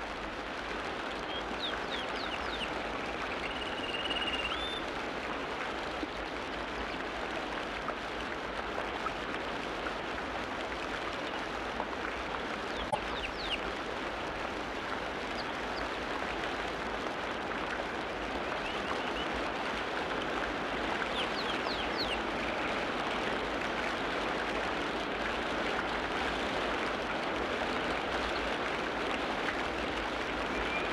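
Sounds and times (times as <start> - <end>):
water rushing: 0.0 - 30.9
faint bird chirps: 3.3 - 4.8, 30.5 - 30.9.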